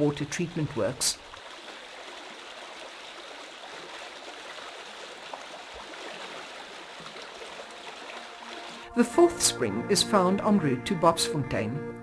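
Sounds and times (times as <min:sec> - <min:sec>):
spring water flowing: 0:00.0 - 0:09.0.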